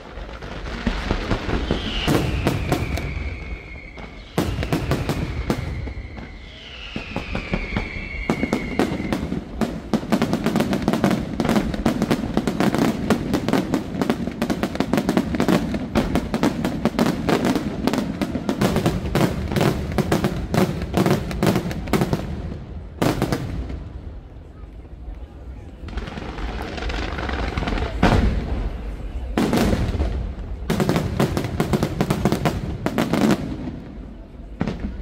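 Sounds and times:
fireworks bursts and crackling: 0.0s - 35.0s
falling firework whistle: 1.2s - 9.8s.

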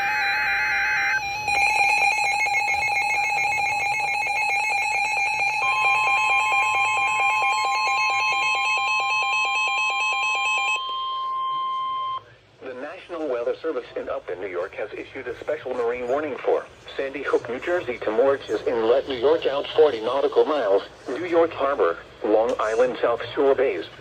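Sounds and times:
fast pulsing alarm: 0.0s - 12.2s
steady warning tone: 0.0s - 12.3s
warbling alternating alarm beeps: 0.0s - 12.3s.

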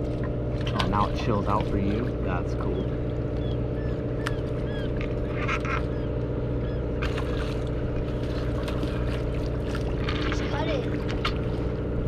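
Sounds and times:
boat engine humming: 0.0s - 12.0s
seabird squawks: 2.3s - 8.2s.

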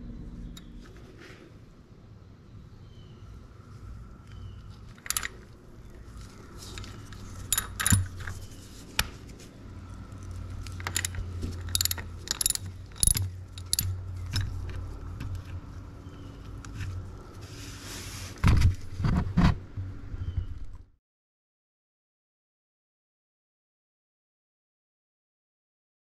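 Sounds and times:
metallic clicks of ratchet wrench: 4.9s - 5.5s, 6.7s - 8.5s, 10.2s - 14.8s.

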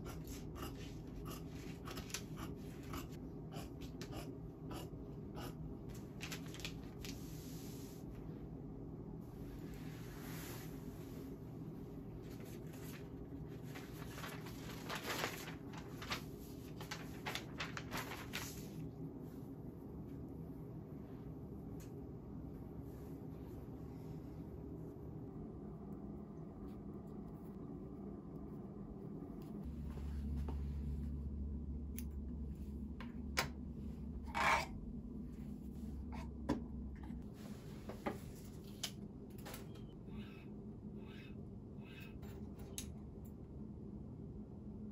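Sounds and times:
steady low hum: 0.0s - 44.9s
fabric and paper rustling: 5.9s - 8.0s, 12.0s - 18.9s.

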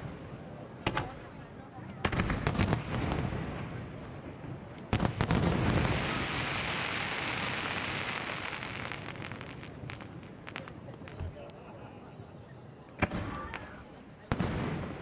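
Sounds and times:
sharp firework pops: 0.8s - 1.3s, 2.0s - 11.6s, 13.0s - 15.0s
fireworks crackling hiss: 2.0s - 12.0s.

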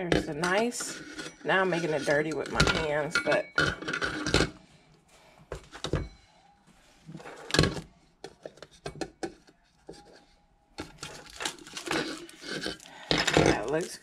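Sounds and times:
plastic parts clicking and knocking: 7.4s - 9.6s
plastic wrapping crinkling: 10.9s - 14.0s.

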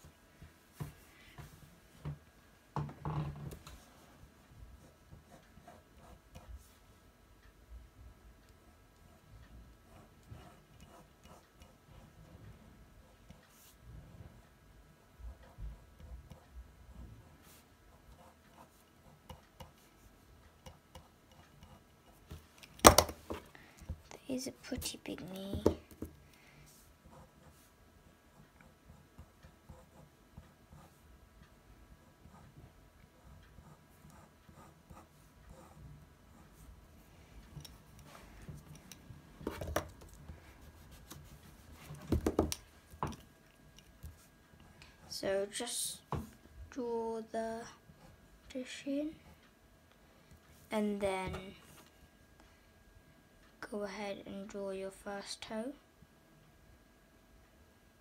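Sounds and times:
pencil scratching on paper: 4.8s - 6.8s, 9.8s - 14.4s, 15.2s - 22.3s, 28.3s - 31.1s, 32.1s - 36.7s
pencil knocking on paper: 20.6s - 24.0s, 24.8s - 26.2s, 39.4s - 40.2s, 41.8s - 43.2s.

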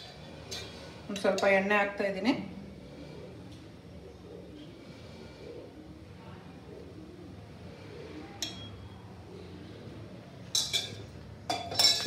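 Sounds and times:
steel utensils clinking: 10.5s - 12.0s.

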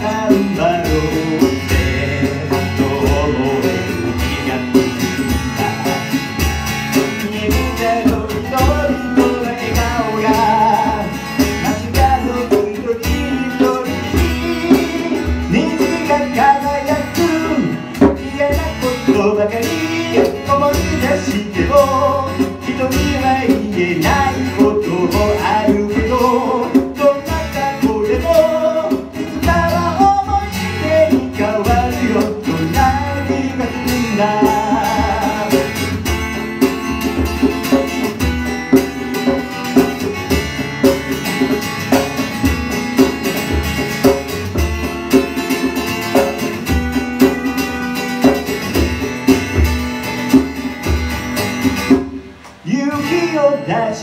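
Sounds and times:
man singing: 0.0s - 36.7s, 52.6s - 54.0s
acoustic guitar: 0.0s - 54.0s.

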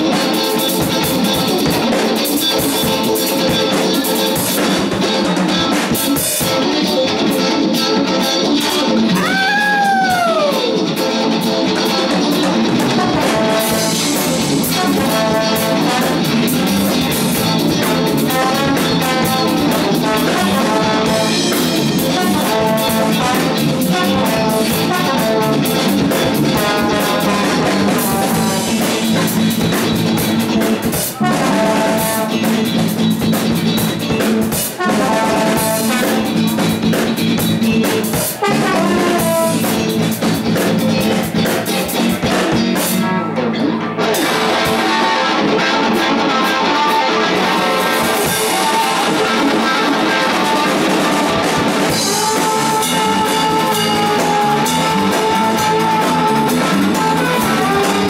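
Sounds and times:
jazz fusion band playing: 0.0s - 58.0s
trombone melody: 11.8s - 29.4s, 30.4s - 32.7s, 34.3s - 36.6s, 38.2s - 40.0s, 46.0s - 58.0s.

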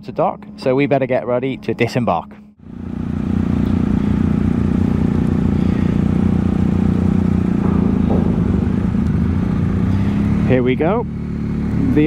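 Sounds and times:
motorcycle engine idling: 2.5s - 12.0s.

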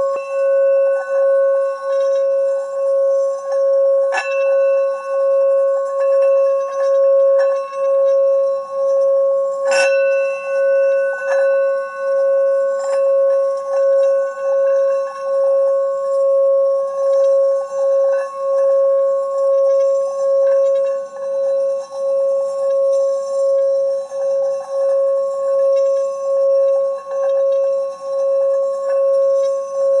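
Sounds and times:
striker hitting bowl: 0.0s - 16.4s
singing bowl ringing tone: 0.0s - 30.0s.

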